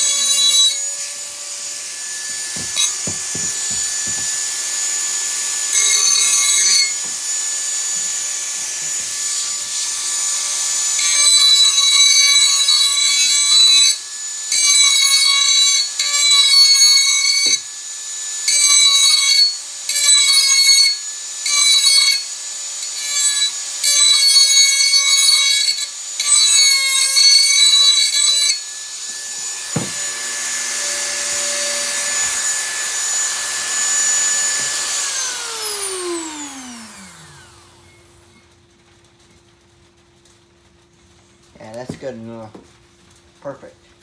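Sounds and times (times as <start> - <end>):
grinding bit on steel: 0.0 - 7.3, 8.6 - 38.0
rotary tool whine: 0.0 - 39.4
knock: 2.6 - 4.3, 29.7 - 30.0.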